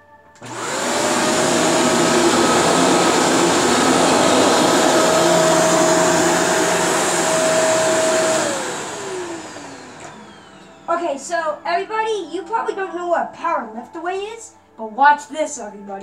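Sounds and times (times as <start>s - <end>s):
vacuum cleaner motor whine: 0.4s - 12.3s.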